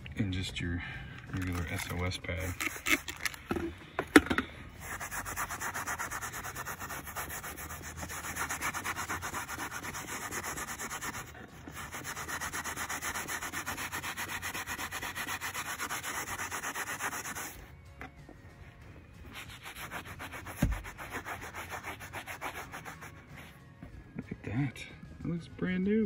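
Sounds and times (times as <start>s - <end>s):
steel wool pad scrubbing plastic: 1.4s - 3.4s, 4.8s - 17.6s, 19.3s - 23.5s.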